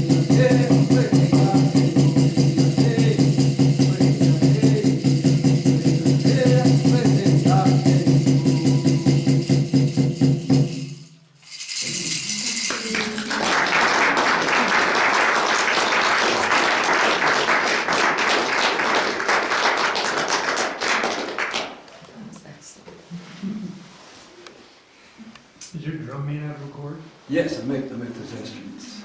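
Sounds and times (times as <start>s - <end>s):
man chanting: 0.0s - 9.5s
gourd drum beating: 0.0s - 10.9s
audience applause: 12.7s - 21.8s.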